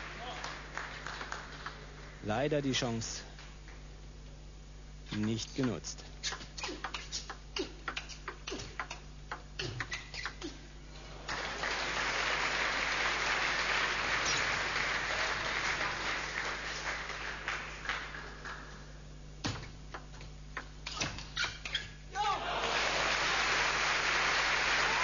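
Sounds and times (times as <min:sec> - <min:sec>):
crowd applause: 0:00.0 - 0:02.3, 0:11.1 - 0:18.8, 0:22.3 - 0:25.0
table tennis ball clicking: 0:05.3 - 0:10.4.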